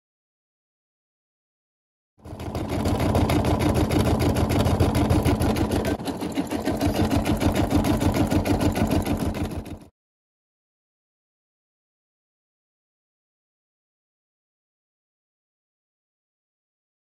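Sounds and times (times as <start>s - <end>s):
embroidery machine stitching: 2.2s - 9.9s.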